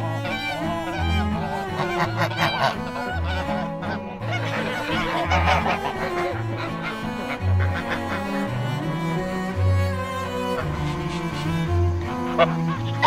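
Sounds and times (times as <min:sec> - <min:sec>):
background music with string bass: 0:00.0 - 0:13.0
geese honking: 0:00.0 - 0:13.0.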